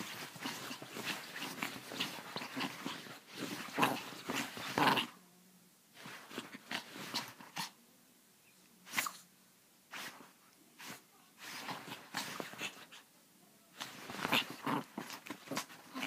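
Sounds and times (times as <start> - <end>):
scuffling on bedding: 0.0 - 5.0
small dog play growling: 0.0 - 5.2, 6.0 - 7.8, 9.9 - 13.1, 13.8 - 16.0.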